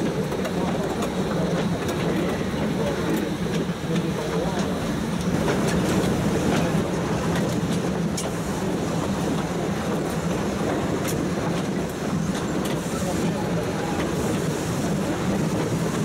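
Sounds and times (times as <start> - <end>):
train wagon rumbling on track: 0.0 - 16.0
wheels clicking on rails: 0.0 - 16.0.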